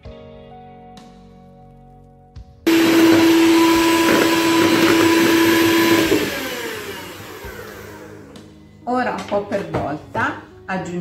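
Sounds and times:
electric hand mixer whirring: 2.7s - 8.5s.

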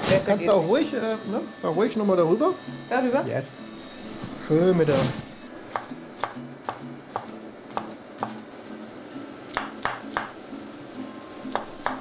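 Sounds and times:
knife chopping on wooden board: 5.7s - 8.4s, 9.5s - 10.4s, 11.5s - 12.0s.

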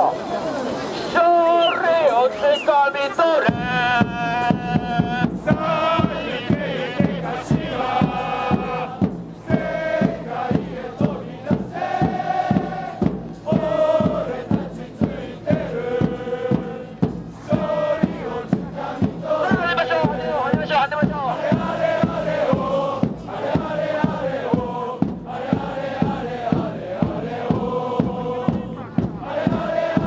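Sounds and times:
crowd chanting: 1.6s - 30.0s.

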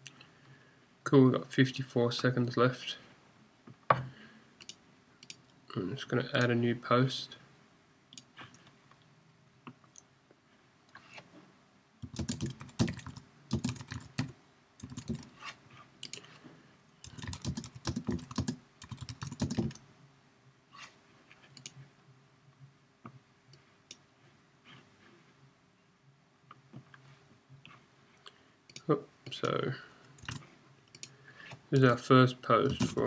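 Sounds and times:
typing on computer keyboard: 12.0s - 15.3s, 17.0s - 19.8s, 30.2s - 31.1s, 32.7s - 33.0s.

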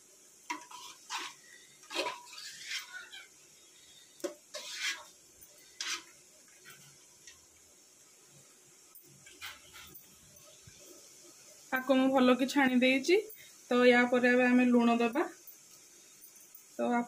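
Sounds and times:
metal ladle scraping a pot: 0.5s - 3.2s, 4.5s - 7.0s, 9.3s - 10.0s.

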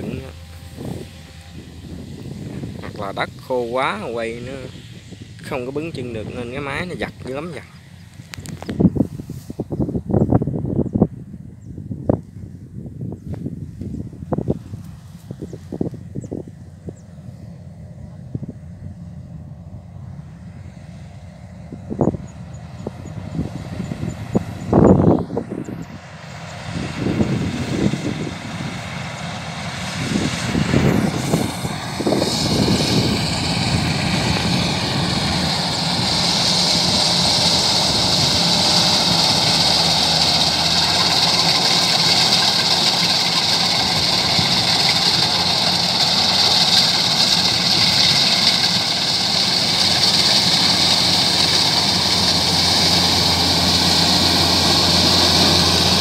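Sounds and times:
combine harvester engine drone: 0.0s - 56.0s
high hiss: 28.3s - 56.0s.

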